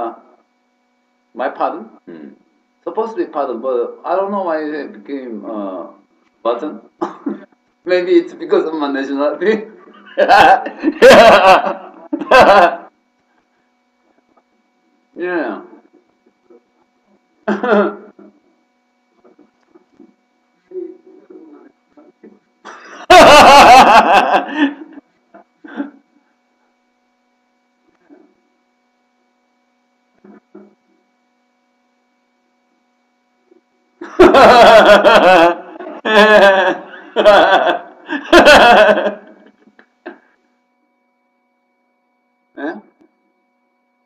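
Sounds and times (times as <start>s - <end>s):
man laughing loudly: 7.0s - 7.6s, 9.9s - 13.5s, 17.4s - 18.4s, 22.7s - 26.2s, 34.0s - 40.3s.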